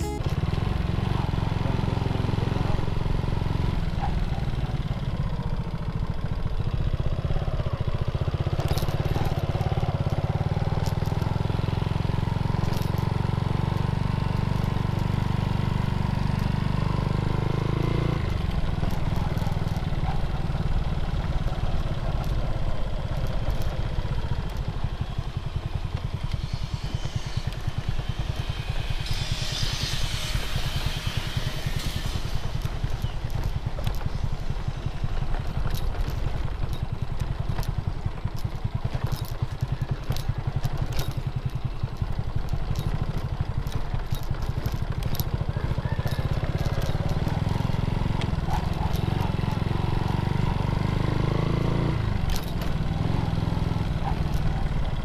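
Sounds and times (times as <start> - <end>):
motorcycle engine running: 0.0 - 55.0
sharp clicks and rattles: 8.4 - 11.5, 18.3 - 51.0, 51.8 - 55.0.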